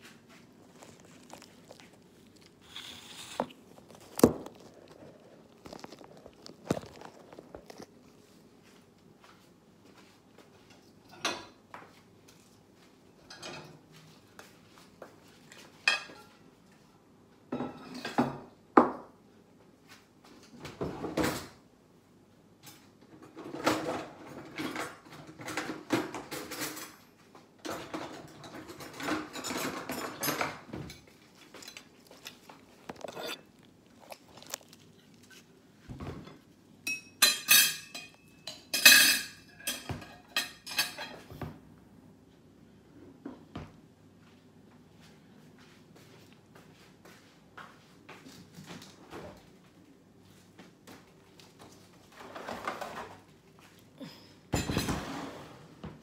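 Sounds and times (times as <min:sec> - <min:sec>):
dishes and cutlery clinking: 0:10.6 - 0:11.6, 0:13.2 - 0:13.9, 0:15.8 - 0:16.4, 0:22.7 - 0:33.5, 0:36.0 - 0:41.5, 0:54.5 - 0:55.3.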